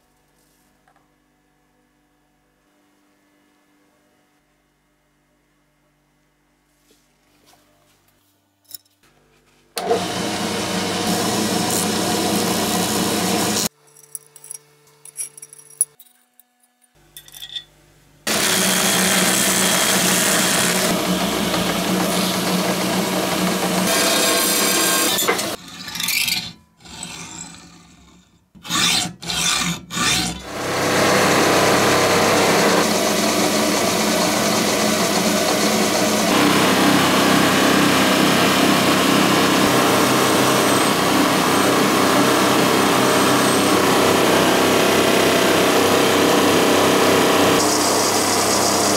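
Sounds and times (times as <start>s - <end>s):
power tool running: 9.8s - 13.7s, 18.3s - 25.6s, 30.2s - 48.9s
hacksaw cutting steel: 18.3s - 27.8s, 28.6s - 32.9s.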